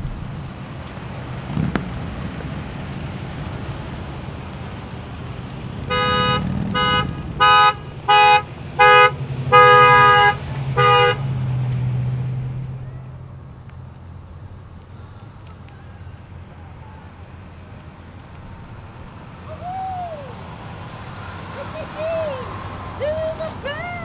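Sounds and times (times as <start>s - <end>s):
vehicles driving past: 0.0s - 24.0s
two-note car horn honking: 5.9s - 11.3s.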